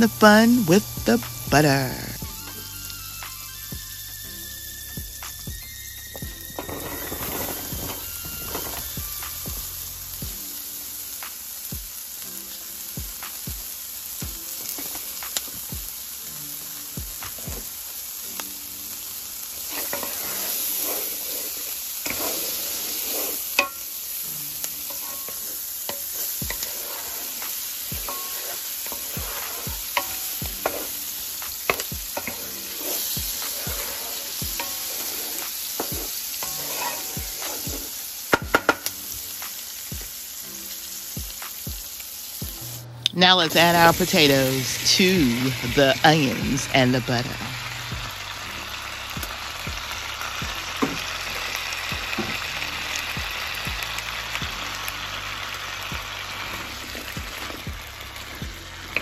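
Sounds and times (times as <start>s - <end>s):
onions sizzling in butter: 0.0s - 59.0s
utensil scraping and tapping pan: 24.9s - 31.0s, 31.6s - 38.9s.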